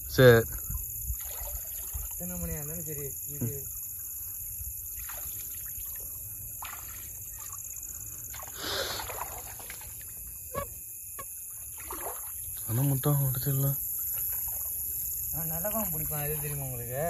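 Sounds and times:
night insects chirring: 0:00.0 - 0:17.0
water splash: 0:01.1 - 0:02.2, 0:04.9 - 0:10.4, 0:11.2 - 0:12.8, 0:14.0 - 0:16.9.

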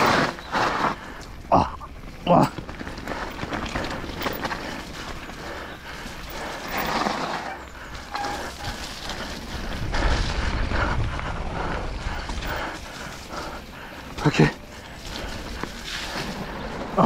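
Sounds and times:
bike rattling over dirt trail: 0:00.0 - 0:17.0
wind buffeting microphone: 0:07.6 - 0:14.1.

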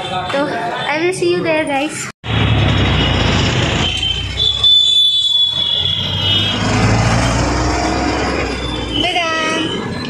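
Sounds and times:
road traffic: 0:00.0 - 0:10.0
auto-rickshaw engine: 0:02.2 - 0:10.0.

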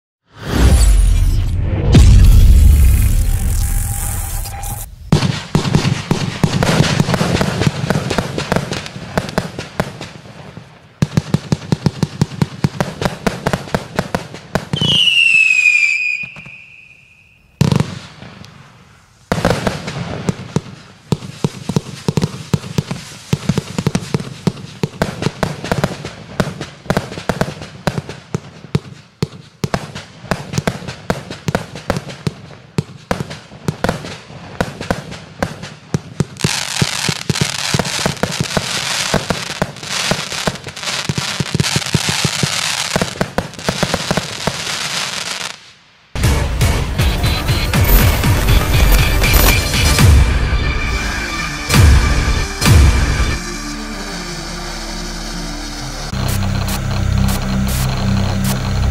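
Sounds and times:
falling firework whistle: 0:00.3 - 0:07.2, 0:14.7 - 0:18.2, 0:47.1 - 0:58.9
firework barrage firing: 0:00.3 - 0:53.7, 0:55.7 - 0:58.9
firework bang: 0:00.4 - 0:10.0, 0:46.2 - 0:51.0.

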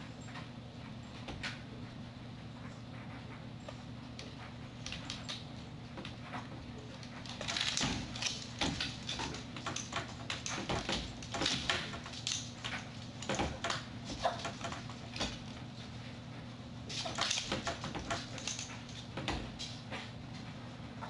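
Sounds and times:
dog claws scraping plastic gate: 0:04.2 - 0:15.7, 0:16.9 - 0:19.9.

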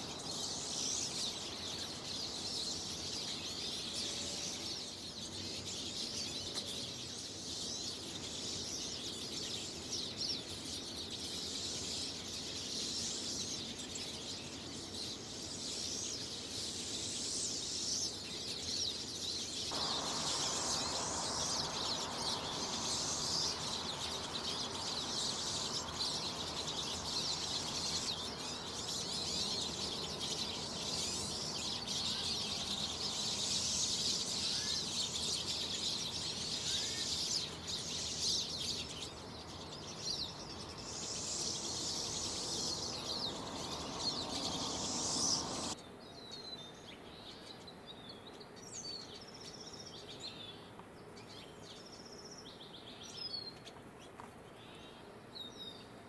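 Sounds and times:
songbirds chattering and calling: 0:00.0 - 0:56.0
steady background hiss: 0:00.0 - 0:56.0
high bird chirps: 0:19.6 - 0:45.8.

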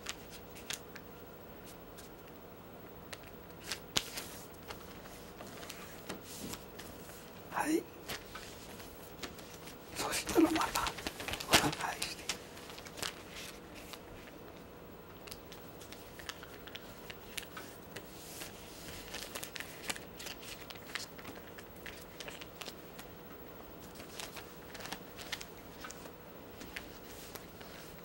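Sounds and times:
paper rustling and crinkling: 0:00.0 - 0:01.0, 0:03.1 - 0:07.4, 0:08.0 - 0:14.4, 0:15.2 - 0:23.2, 0:23.8 - 0:28.0
paper clicks: 0:08.1 - 0:14.0, 0:15.2 - 0:23.1.

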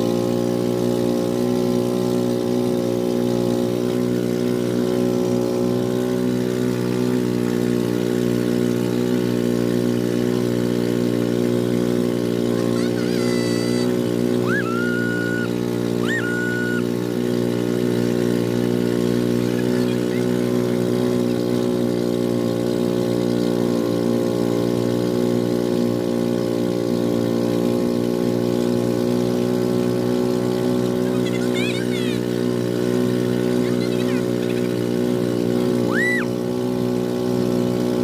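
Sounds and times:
boat engine droning: 0:00.0 - 0:38.0
high rising tones: 0:12.7 - 0:16.9.

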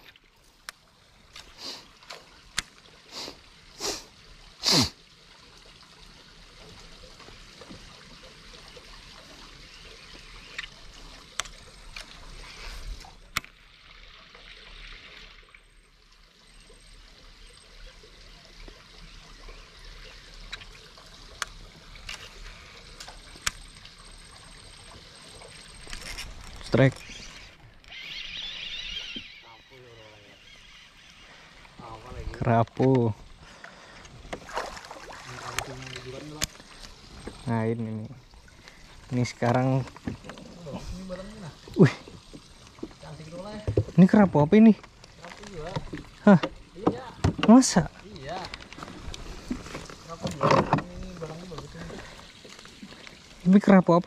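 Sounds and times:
water lapping against hull: 0:17.4 - 0:53.7.

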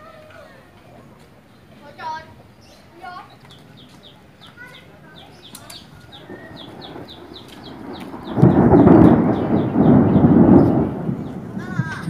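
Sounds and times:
thunder rumbling: 0:05.1 - 0:12.0.

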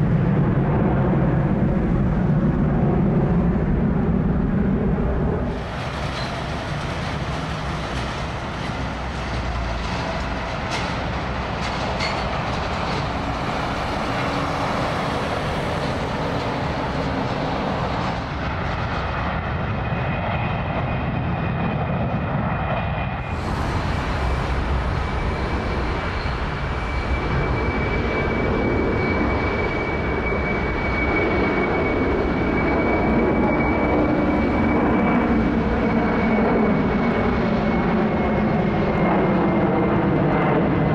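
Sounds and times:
jet airliner engines roaring: 0:00.0 - 0:40.9.

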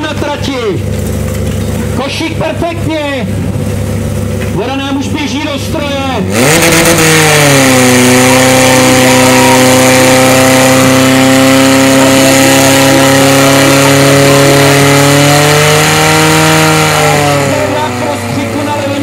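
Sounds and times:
pump engine revving: 0:00.0 - 0:19.0.

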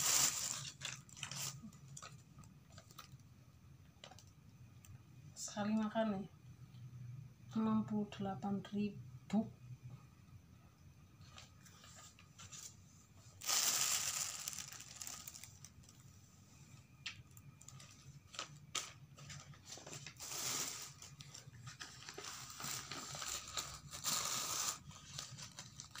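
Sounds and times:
paper wrapping crinkling: 0:00.0 - 0:03.2, 0:13.4 - 0:16.0, 0:17.3 - 0:26.0
small clicks and crackles: 0:00.5 - 0:03.3, 0:04.0 - 0:05.0, 0:13.6 - 0:16.0.

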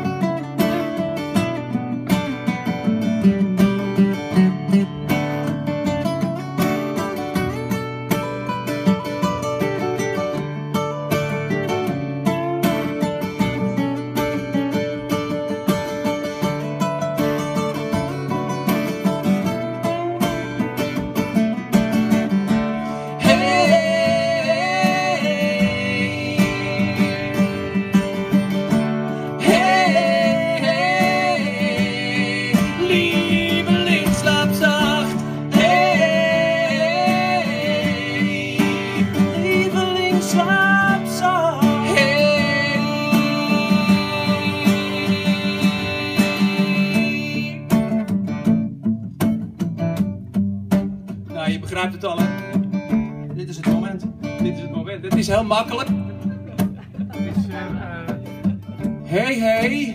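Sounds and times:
acoustic guitar: 0:00.0 - 0:59.9
wordless vocal melody: 0:22.2 - 0:48.0, 0:56.0 - 0:59.9.

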